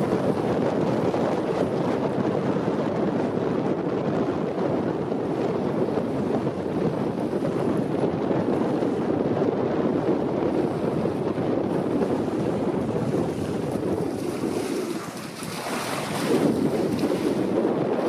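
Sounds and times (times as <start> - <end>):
wind buffeting microphone: 0.0 - 18.0
waves lapping on pebbles: 13.3 - 17.5.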